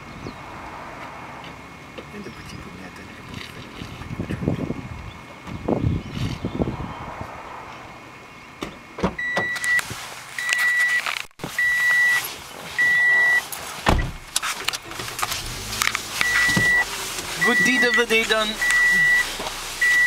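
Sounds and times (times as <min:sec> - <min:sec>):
car warning chime beeping: 0:09.2 - 0:09.8, 0:10.4 - 0:11.0, 0:11.6 - 0:12.2, 0:12.8 - 0:13.5, 0:16.2 - 0:20.0.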